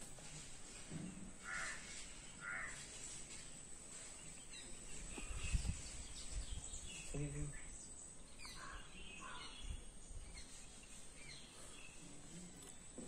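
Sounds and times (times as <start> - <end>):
bird calling: 4.2 - 13.0.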